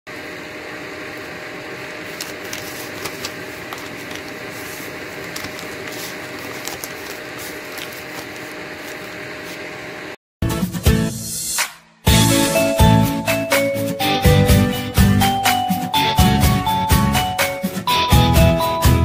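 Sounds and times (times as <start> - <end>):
motor humming: 0.1 - 10.2
newspaper crinkling: 1.9 - 9.7
bread tearing: 2.1 - 9.2.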